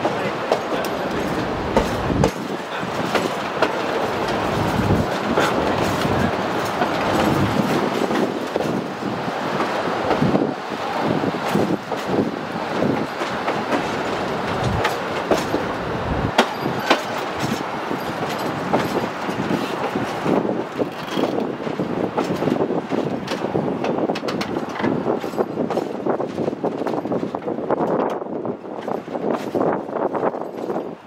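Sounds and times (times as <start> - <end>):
wheel clicks and clacks: 0.0 - 8.8, 16.3 - 28.2
wheels rumbling on rail: 0.0 - 31.0.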